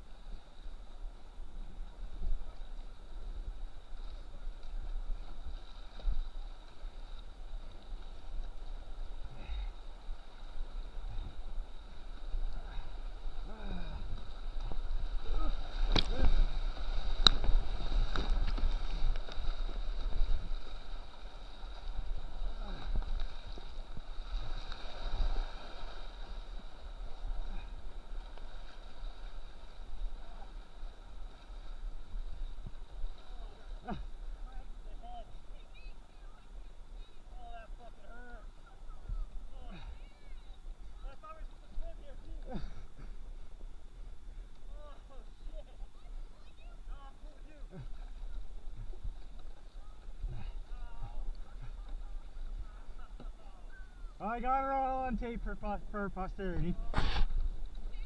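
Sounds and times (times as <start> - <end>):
river water rushing and splashing: 0.0 - 36.2
paddle blades dipping: 0.0 - 58.0.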